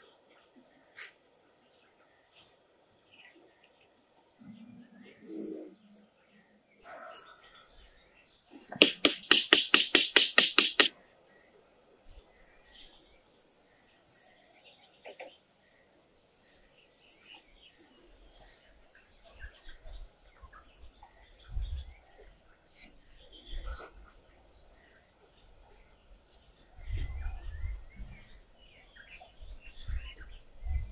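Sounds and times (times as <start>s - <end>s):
insects droning: 0.0s - 30.9s
rapid sharp knocks: 8.8s - 10.9s.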